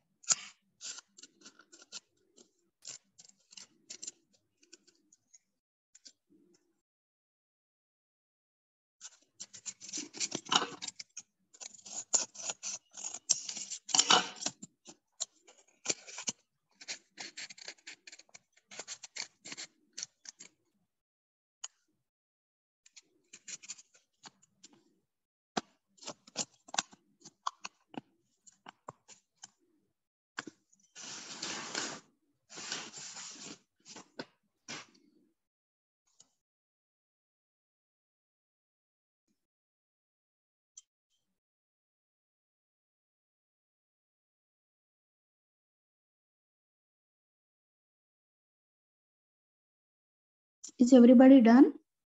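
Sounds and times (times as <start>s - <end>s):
scissors snipping paper: 9.4s - 20.5s, 22.9s - 24.8s
steady paper noise: 31.0s - 34.1s.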